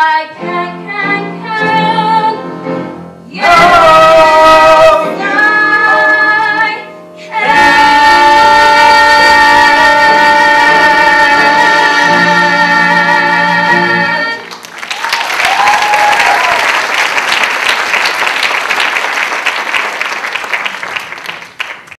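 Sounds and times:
singers and band holding note: 0:03.3 - 0:14.5
audience applauding: 0:14.4 - 0:22.0
audience cheering: 0:14.7 - 0:19.2.

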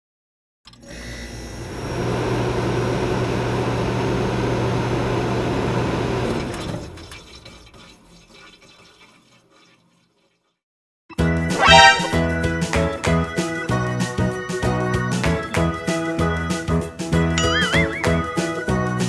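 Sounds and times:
cartoon rocket launch blast: 0:11.5 - 0:12.3.

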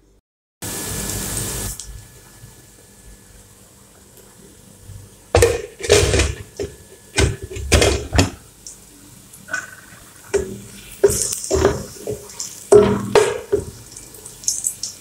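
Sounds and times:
pots and lids clattering: 0:05.4 - 0:08.4, 0:09.5 - 0:13.8.

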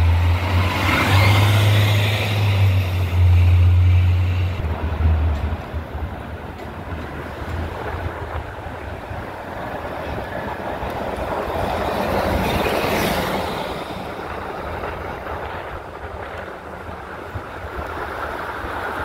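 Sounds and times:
buses passing: 0:00.0 - 0:19.0
traffic noise: 0:00.0 - 0:19.0.

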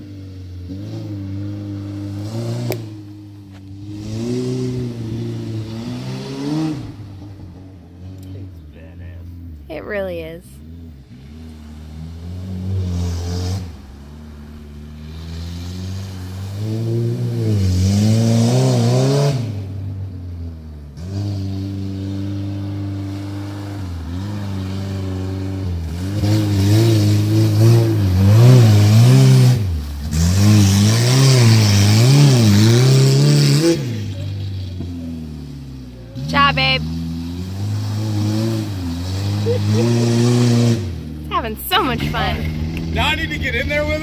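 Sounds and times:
car engine revving hard: 0:00.0 - 0:08.5, 0:10.6 - 0:44.0.

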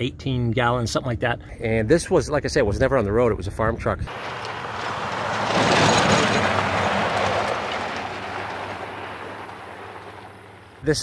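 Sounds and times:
vehicle passing by: 0:04.1 - 0:10.8.

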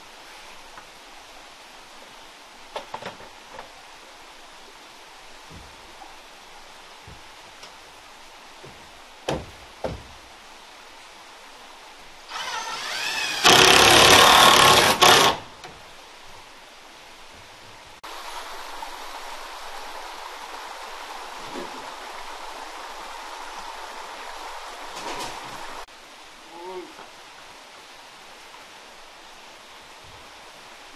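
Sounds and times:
steady hiss: 0:00.0 - 0:30.9
sharp knocks: 0:08.6 - 0:10.2
power tool whirring: 0:12.3 - 0:15.4.

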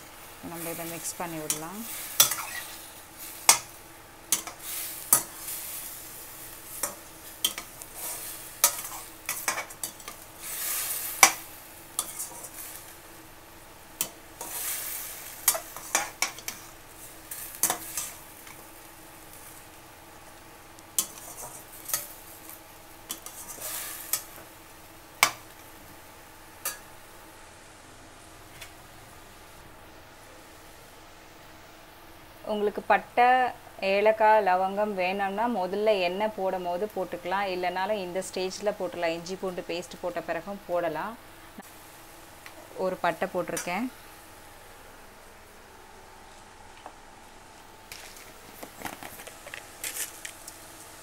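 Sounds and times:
chicken sizzling in oil: 0:00.0 - 0:27.4
metal spoon scraping pan: 0:01.5 - 0:02.8, 0:12.0 - 0:12.8, 0:21.0 - 0:22.1, 0:23.1 - 0:24.3.

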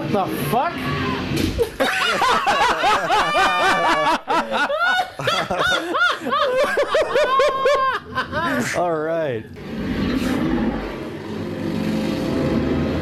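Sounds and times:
high-pitched laugh pulses: 0:01.6 - 0:08.8
men laughing: 0:01.6 - 0:08.9.

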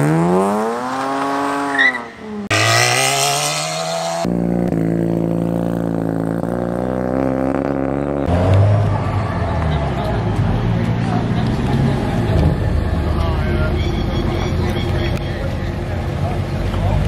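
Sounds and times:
car revving with tyre spinning: 0:00.0 - 0:13.1
rotary engine accelerating: 0:02.4 - 0:09.1.

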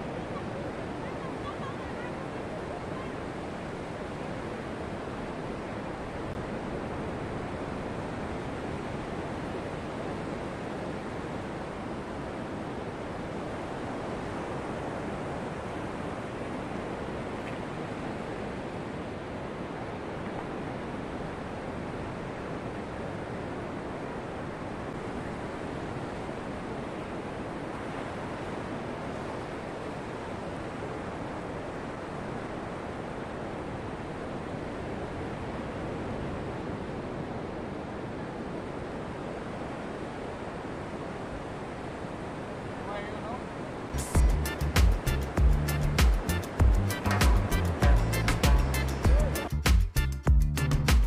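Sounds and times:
ocean surf breaking: 0:00.0 - 0:45.4.

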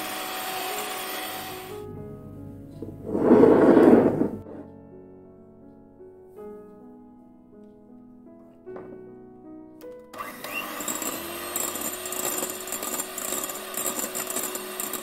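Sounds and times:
electric hand mixer whipping: 0:00.0 - 0:01.8, 0:10.2 - 0:15.0
soft piano music: 0:00.0 - 0:10.4.

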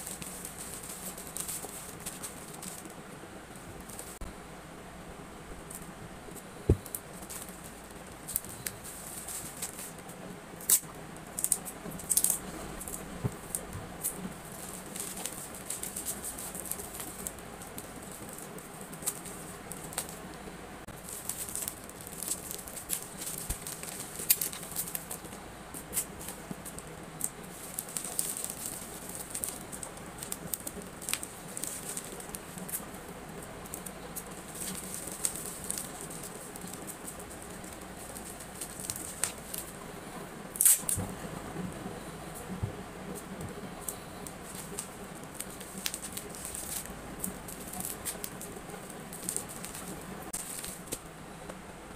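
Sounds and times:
plastic packaging rustling: 0:00.0 - 0:03.0, 0:10.6 - 0:39.9, 0:42.4 - 0:51.1.

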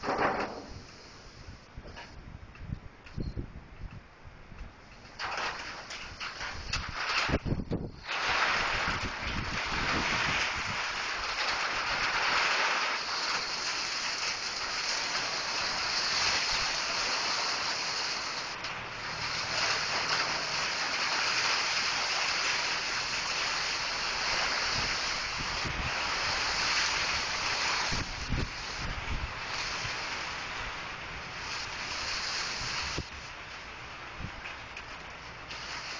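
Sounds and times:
rain falling: 0:05.0 - 0:35.9.

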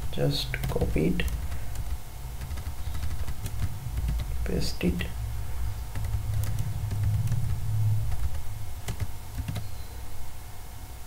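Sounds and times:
steady low hum: 0:00.0 - 0:11.0
keyboard and mouse clicks: 0:05.9 - 0:09.7.

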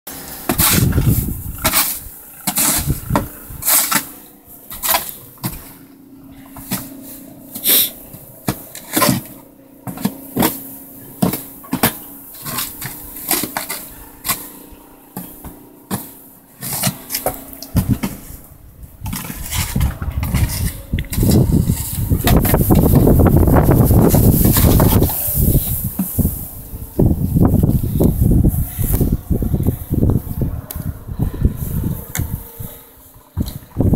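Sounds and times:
wind rumbling on microphone: 0:00.1 - 0:07.0, 0:17.3 - 0:33.9
snow shovel scraping snow: 0:00.1 - 0:30.6
engine hum: 0:00.1 - 0:33.9.

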